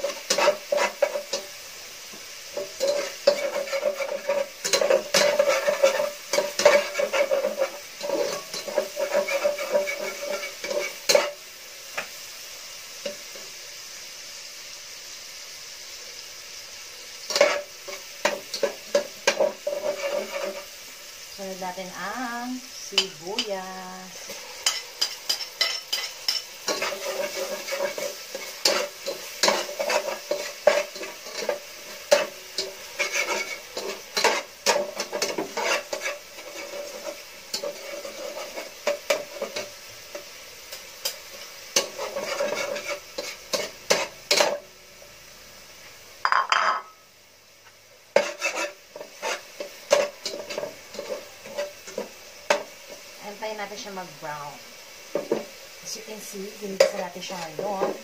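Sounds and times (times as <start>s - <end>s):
metal turner scraping pot: 0.0s - 1.5s, 2.6s - 11.4s, 17.3s - 20.7s, 24.6s - 40.2s, 41.8s - 44.6s, 48.1s - 52.6s
onion sizzling in hot oil: 0.0s - 58.0s.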